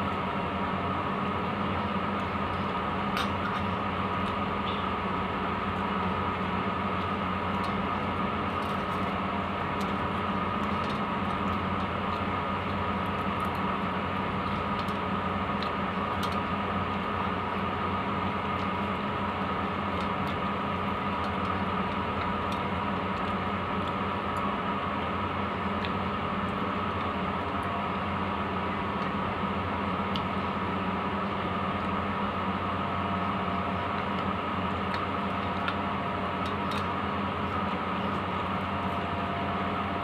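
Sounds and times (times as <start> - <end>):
mechanical hum with high whine: 0.0 - 40.0.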